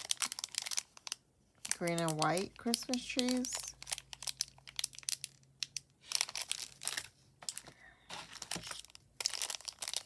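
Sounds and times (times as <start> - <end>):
plastic packaging crinkling: 0.0 - 10.0
tissue paper rustling: 6.0 - 10.0.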